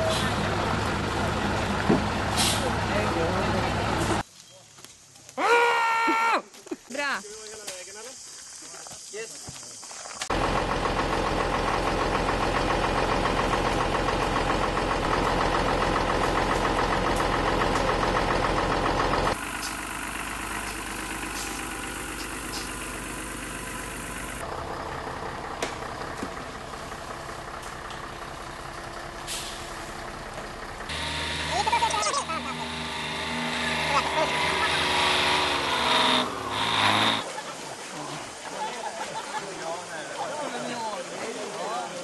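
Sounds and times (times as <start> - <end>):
vehicle engine running: 0.0 - 4.2, 10.3 - 37.2.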